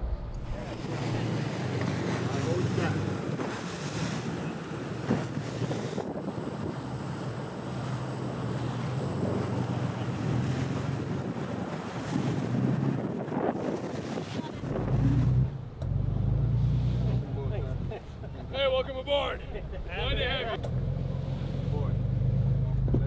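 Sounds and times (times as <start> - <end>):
wind buffeting microphone: 0.0 - 7.1, 9.0 - 15.6
low engine hum: 0.0 - 13.2, 14.1 - 23.0
rush of sea and boat wake: 0.0 - 23.0.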